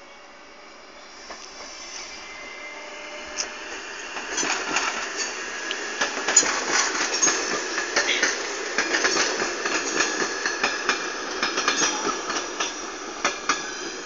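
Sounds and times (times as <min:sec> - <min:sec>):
train rolling noise: 0:00.0 - 0:14.0
wheels clacking over rail joints: 0:04.1 - 0:14.0.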